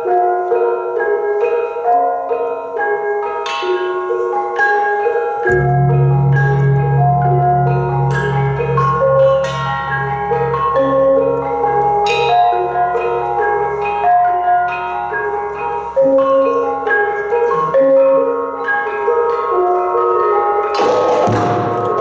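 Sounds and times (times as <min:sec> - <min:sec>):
metallophones and kettle gongs: 0:02.8 - 0:22.0
large gong humming: 0:05.5 - 0:10.6.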